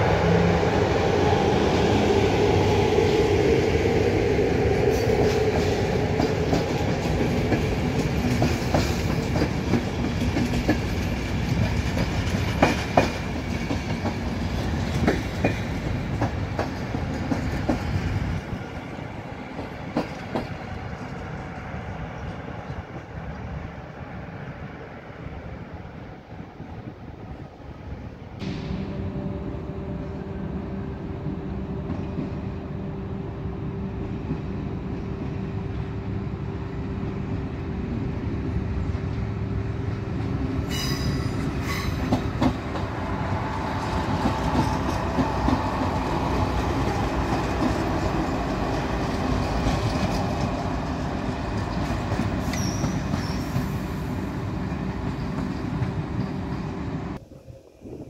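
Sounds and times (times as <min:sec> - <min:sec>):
electric train rumble and hum: 0:00.0 - 0:58.0
train wheel squeal: 0:40.6 - 0:42.5, 0:51.6 - 0:56.8.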